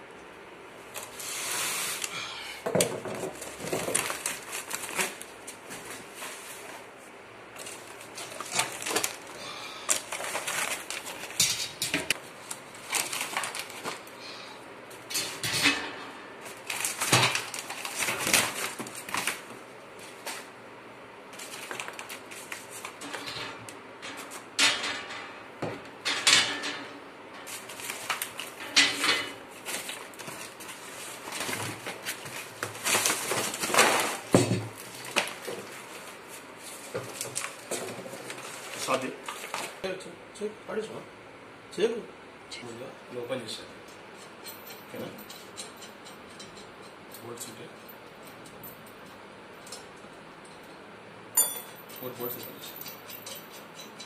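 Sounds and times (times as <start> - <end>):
cardboard and plastic rustling: 2.8 - 6.9, 7.5 - 11.4, 12.1 - 14.2, 16.4 - 20.5, 21.3 - 23.3, 27.5 - 28.7, 29.5 - 39.8.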